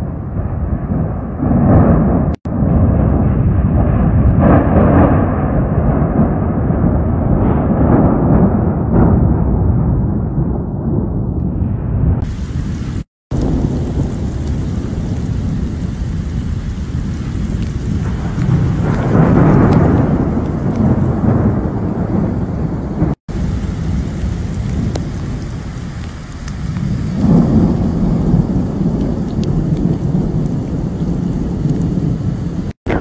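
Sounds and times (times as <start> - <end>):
thunder rumbling: 0.0 - 33.0
heavy rain: 12.1 - 33.0.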